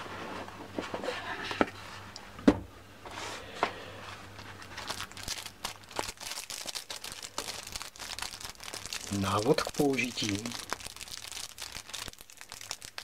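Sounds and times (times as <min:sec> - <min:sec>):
cellophane crinkling: 0:04.3 - 0:13.0.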